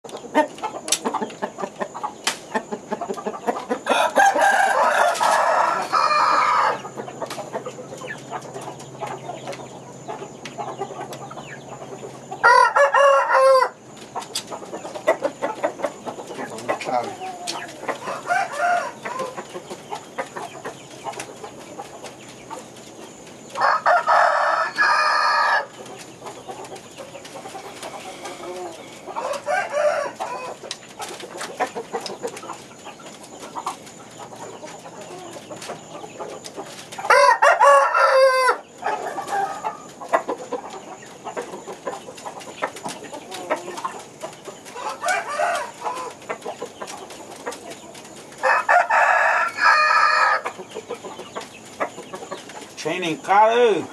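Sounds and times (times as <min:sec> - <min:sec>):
chicken clucks and calls: 0:00.0 - 0:53.9
rooster crowing: 0:03.8 - 0:06.9, 0:12.4 - 0:13.8, 0:17.3 - 0:19.4, 0:23.6 - 0:25.7, 0:27.6 - 0:30.6, 0:37.1 - 0:39.8, 0:44.8 - 0:46.1, 0:48.4 - 0:50.4.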